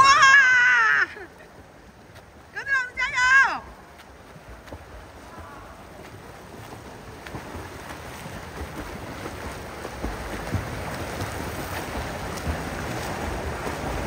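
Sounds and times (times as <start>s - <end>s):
swimmers splashing: 0.0s - 14.0s.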